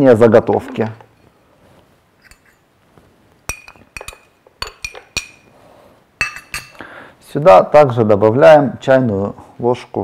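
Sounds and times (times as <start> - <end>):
glass jar clinking on blender rim: 6.2 - 6.8.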